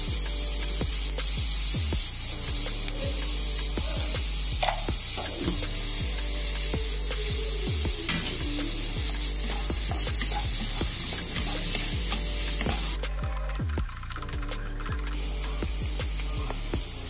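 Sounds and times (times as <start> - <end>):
onions sizzling in hot oil: 0.0 - 13.0.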